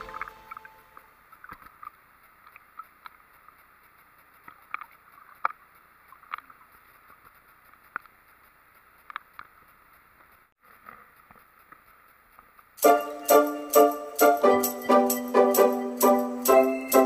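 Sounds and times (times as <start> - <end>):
water splashing: 0.0 - 7.5
faint steady hiss: 0.0 - 17.0.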